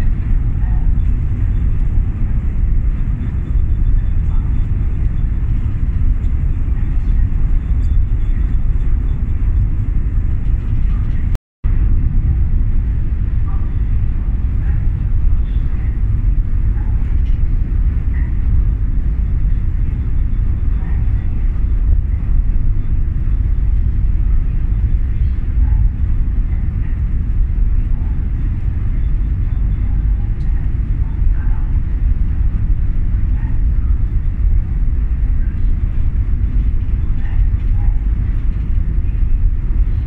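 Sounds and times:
ferry low rumble: 0.0 - 40.0.

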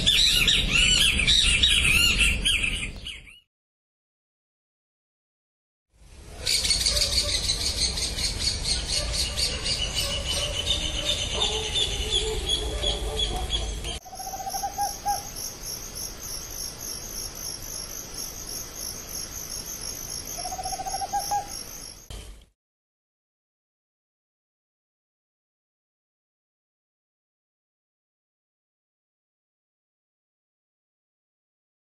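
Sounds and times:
owl trill: 0.0 - 3.4, 6.4 - 15.5, 20.3 - 21.7
crickets chirping: 14.0 - 22.2.

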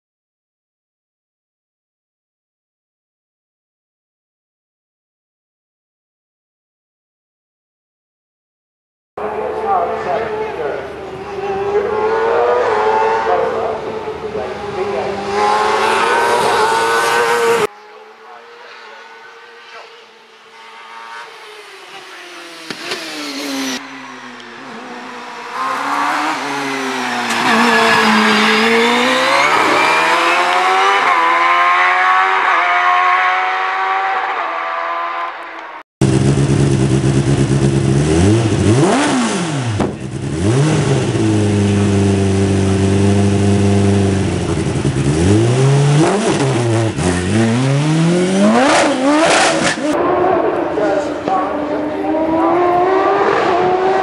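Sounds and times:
racing car revving: 9.2 - 54.0
racing car accelerating through gears: 9.5 - 35.7, 37.7 - 54.0.

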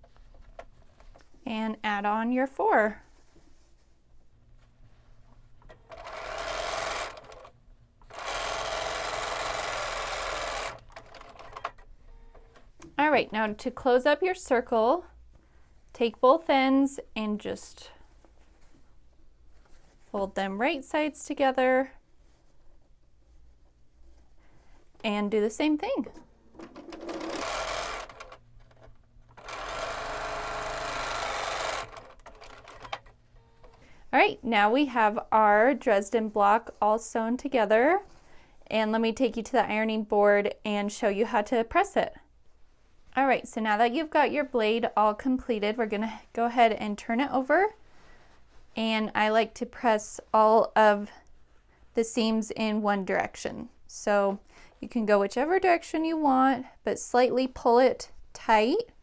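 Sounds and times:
sewing machine stitching: 5.7 - 11.8, 26.6 - 33.8.

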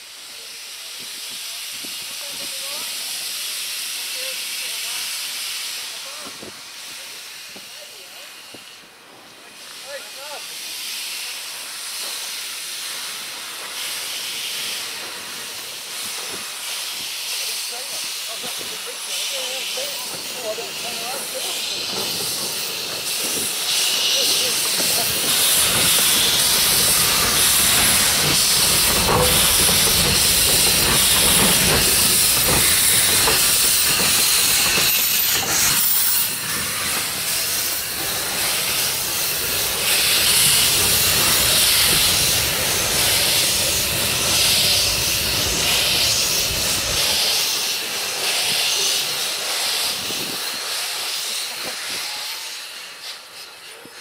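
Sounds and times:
steam locomotive hissing: 0.0 - 54.0
locomotive rumbling on rails: 11.9 - 54.0.

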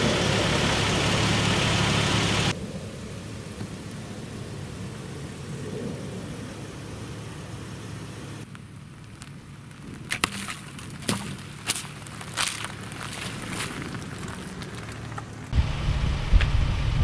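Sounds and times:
car engine at low revs: 0.0 - 10.1, 10.8 - 17.0
tyre rolling over objects: 9.8 - 15.5.

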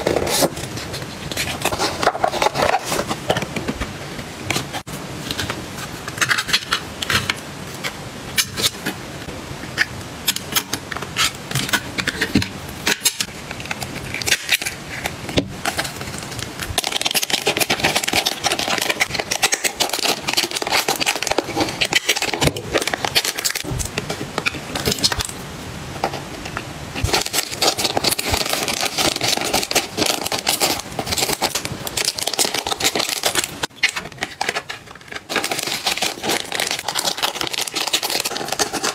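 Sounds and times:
plastic bags crinkling: 13.5 - 25.4, 26.9 - 38.9.

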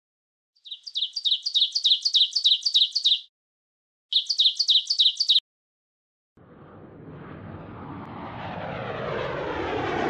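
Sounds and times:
bird chirping rapidly: 0.6 - 3.3, 4.1 - 5.4.

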